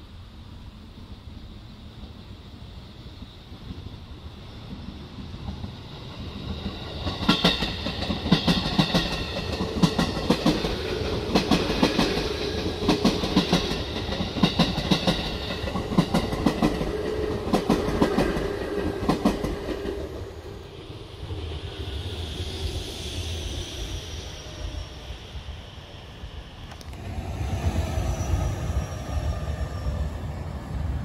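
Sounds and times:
train running hum: 0.0s - 31.0s
train wheels clicking over rail joints: 4.7s - 20.2s.

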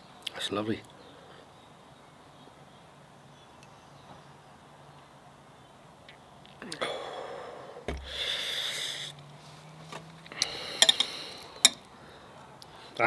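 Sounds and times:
breathy exhale: 6.7s - 9.7s, 10.3s - 13.0s
glass thump on wooden table: 7.9s - 8.1s.

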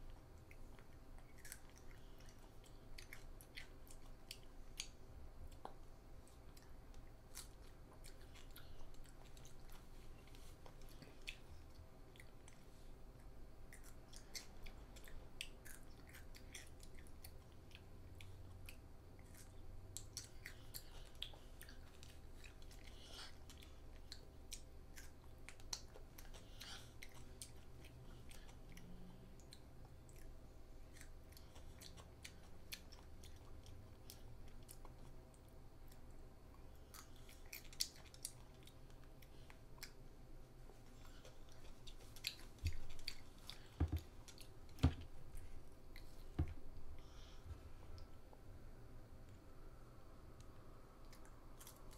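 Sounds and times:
child crunching cucumber: 0.5s - 5.0s, 13.7s - 35.2s, 40.9s - 46.2s.

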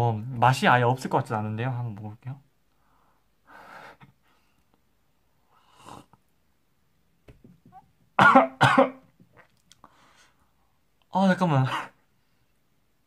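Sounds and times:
faint breaths: 2.7s - 6.2s, 9.8s - 10.8s.

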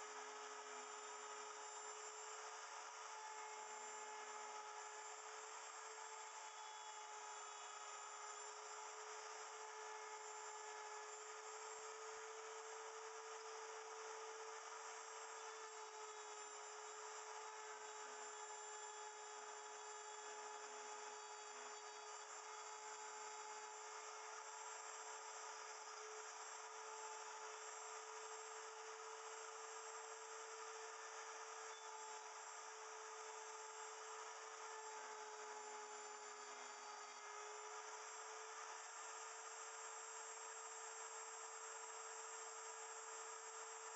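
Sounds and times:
wood router whining: 0.0s - 43.9s.

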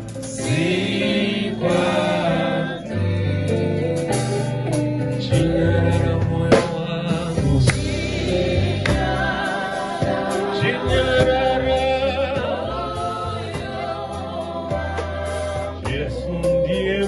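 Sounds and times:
drum kit and cymbals: 0.0s - 17.0s
electric guitar: 0.0s - 17.0s
live band playing: 0.0s - 17.0s
man singing into a microphone: 5.2s - 8.8s, 10.5s - 12.8s, 15.8s - 17.0s.

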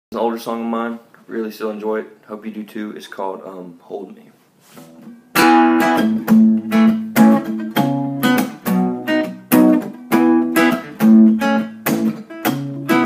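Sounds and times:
acoustic guitar strumming: 4.9s - 13.0s.

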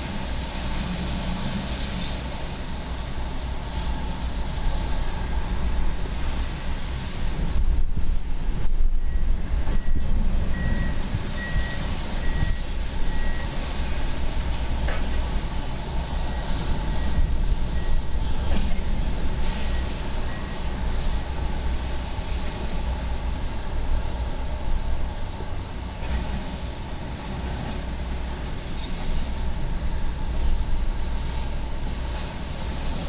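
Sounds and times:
diesel engine low rumble: 0.0s - 33.0s
warning alarm beeping: 9.1s - 13.6s.

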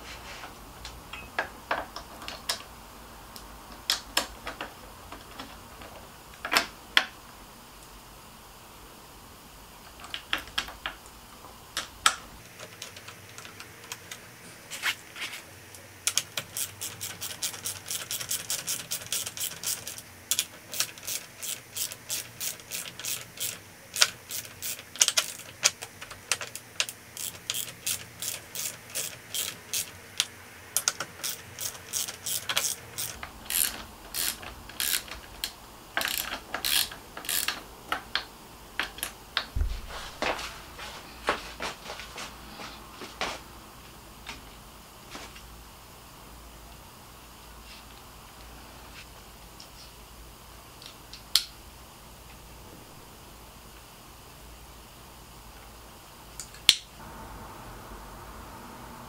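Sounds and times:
ratcheting bit driver clicking: 16.1s - 39.2s.

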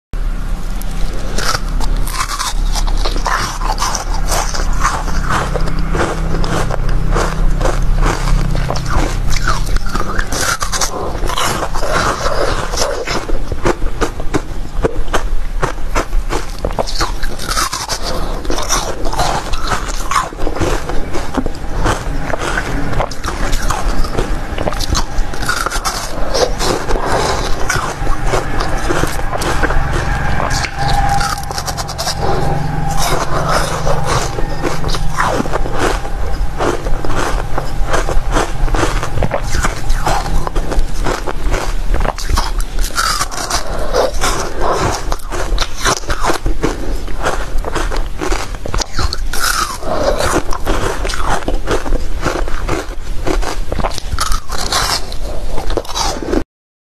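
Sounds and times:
ice being bitten and crunched: 1.4s - 28.0s, 38.0s - 56.4s.

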